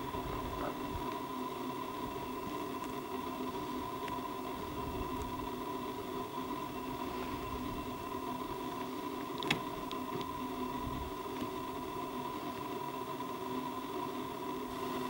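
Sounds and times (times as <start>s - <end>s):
camera electrical hum: 0.0s - 15.0s
steady hiss: 0.0s - 15.0s
faint ticks: 1.0s - 1.3s, 2.0s - 6.6s, 8.7s - 10.6s, 11.2s - 11.6s.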